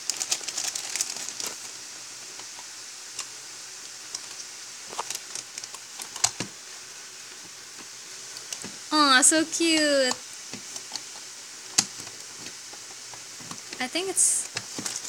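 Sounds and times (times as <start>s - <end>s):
plastic bag crinkling: 0.0s - 1.8s, 4.1s - 6.3s, 14.5s - 15.0s.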